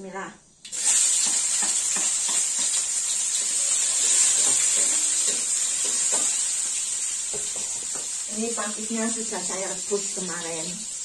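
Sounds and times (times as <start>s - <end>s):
vegetables sizzling in hot oil: 0.7s - 11.0s
spatula scraping wok: 0.8s - 9.1s.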